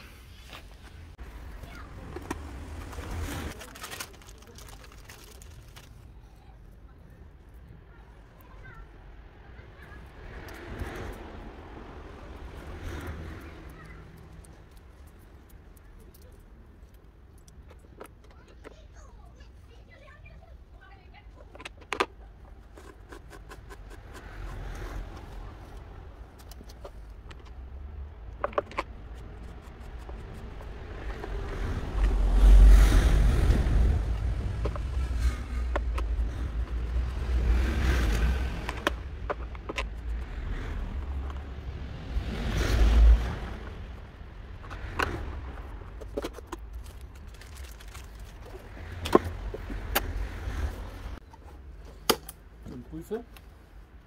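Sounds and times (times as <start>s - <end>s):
plastic and metal parts clicking: 28.3s - 30.4s.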